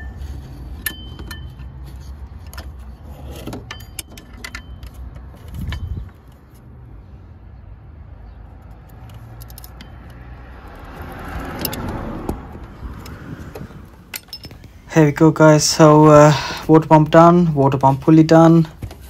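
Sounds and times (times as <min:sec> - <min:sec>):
metal tools clinking on engine parts: 0:00.0 - 0:06.6, 0:09.0 - 0:10.2, 0:13.9 - 0:14.9.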